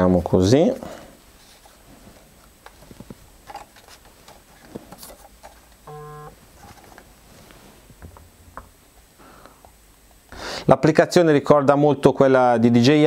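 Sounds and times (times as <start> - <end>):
short electronic beep: 5.9 - 6.3.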